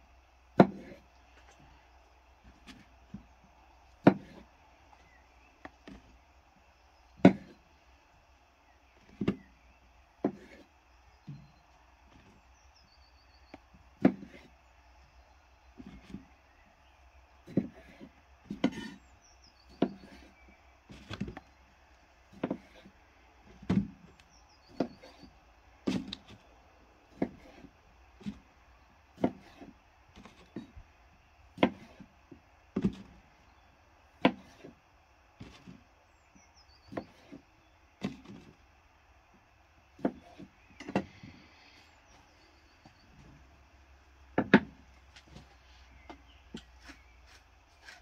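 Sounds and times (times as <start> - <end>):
knife chopping onion on wooden board: 0.6 - 1.0, 4.0 - 4.5, 7.2 - 7.6, 10.2 - 10.7, 14.0 - 14.5, 17.4 - 19.0, 19.7 - 20.3, 22.3 - 22.9, 24.7 - 25.2, 27.1 - 28.4, 29.2 - 30.7, 31.6 - 32.1, 34.2 - 34.7, 36.9 - 37.4, 40.0 - 41.0.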